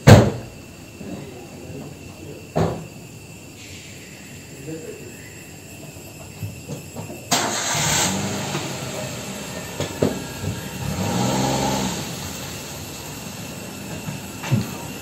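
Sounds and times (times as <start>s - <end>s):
engine humming: 7.3s - 15.0s.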